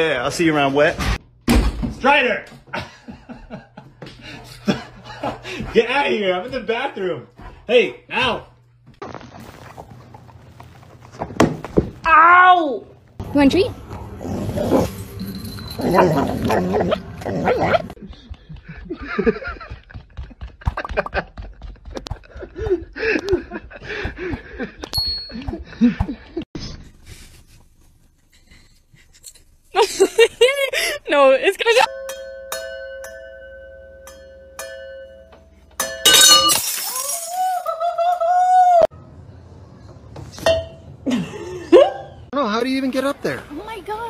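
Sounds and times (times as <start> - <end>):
wine glasses clinking: 31.9 - 37.4
glass breaking crash: 35.8 - 37.7.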